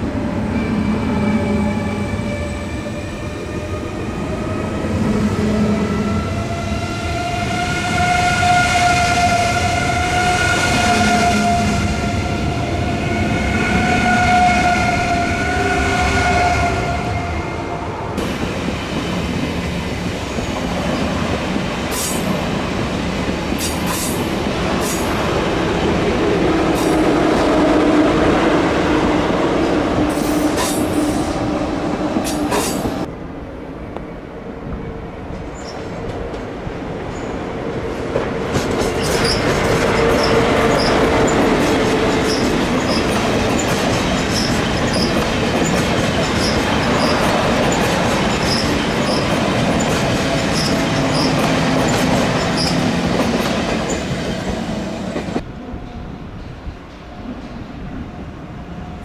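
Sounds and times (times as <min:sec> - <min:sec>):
trains rolling past: 0:00.0 - 0:59.0
wheels clacking over rail joints: 0:38.1 - 0:54.2
wheel squeal: 0:42.3 - 0:49.9, 0:50.5 - 0:51.5.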